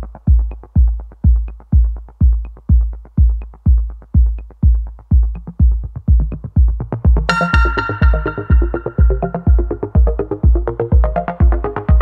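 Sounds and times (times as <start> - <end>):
light percussion ticking: 0.0 - 10.6
steady kick drum beat: 0.0 - 12.0
electronic dance music: 7.3 - 11.8.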